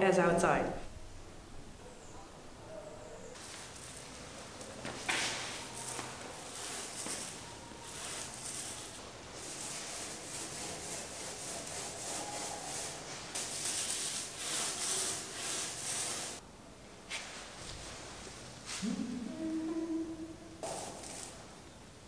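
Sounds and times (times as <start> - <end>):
paint roller scraping on wood: 3.4 - 16.4.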